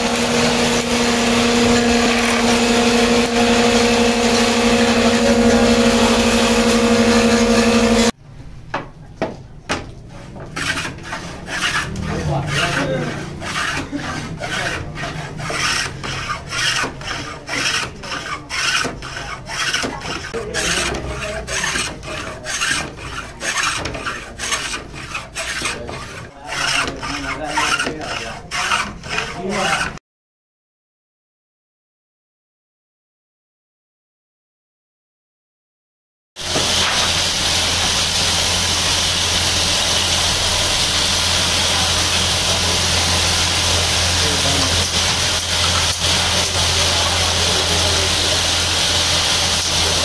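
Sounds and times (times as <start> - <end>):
bench plane shaving wood: 0.0 - 8.2, 10.1 - 30.0, 36.4 - 50.0
workshop machine motor humming: 0.0 - 8.2, 36.4 - 50.0.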